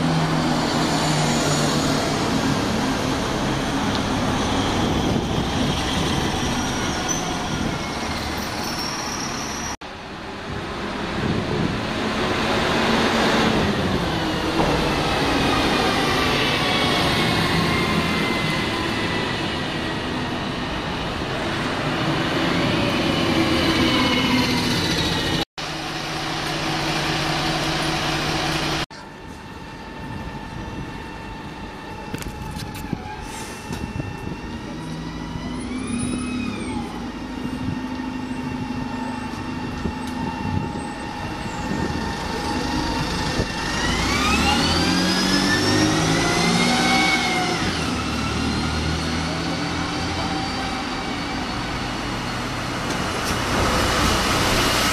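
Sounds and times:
diesel bus engine with whine: 0.0 - 8.0, 9.9 - 54.9
general traffic: 0.0 - 54.9.

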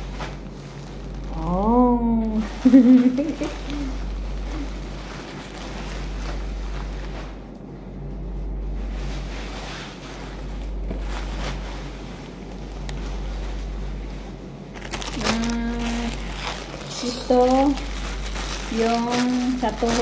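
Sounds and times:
plastic raincoat rustling: 0.0 - 20.0
person humming: 1.4 - 4.8, 15.2 - 16.3.

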